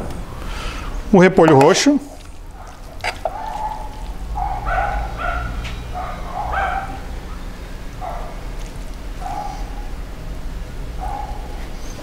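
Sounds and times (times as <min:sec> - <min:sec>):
low steady hum: 0:00.0 - 0:12.0
small dog yapping: 0:02.6 - 0:07.0, 0:08.0 - 0:09.8.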